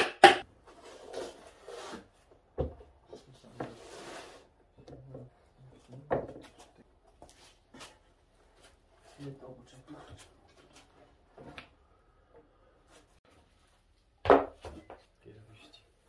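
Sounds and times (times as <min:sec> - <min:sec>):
wood scraping and shuffling: 0:00.6 - 0:11.6.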